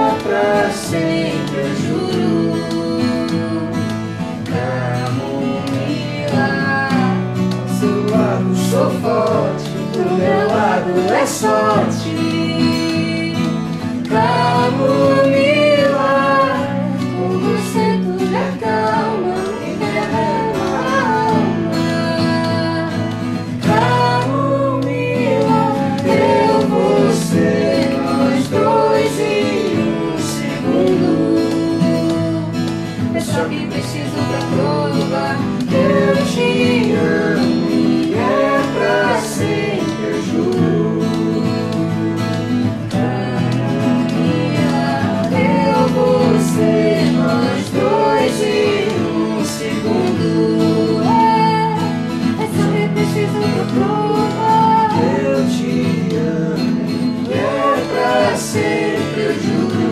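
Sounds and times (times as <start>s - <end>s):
people singing: 0.0s - 59.9s
strummed acoustic guitars: 0.0s - 59.9s.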